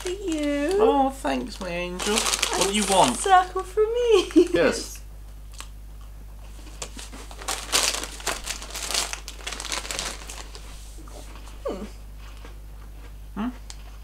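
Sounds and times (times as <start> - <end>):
plastic bag crinkling: 0.0 - 3.7, 6.6 - 10.9
biscuit crackles: 0.0 - 4.5, 6.4 - 11.6
person humming: 11.0 - 12.0, 13.4 - 13.7.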